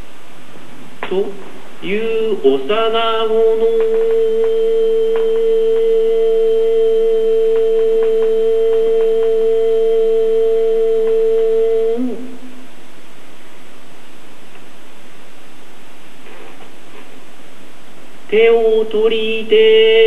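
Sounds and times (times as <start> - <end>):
man chanting a poem: 1.0 - 9.5, 18.3 - 20.0.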